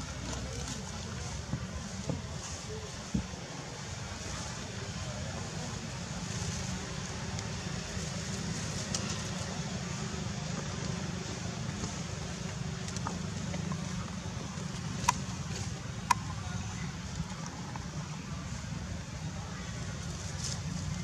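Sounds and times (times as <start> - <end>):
low rumble and hiss: 0.0 - 21.0.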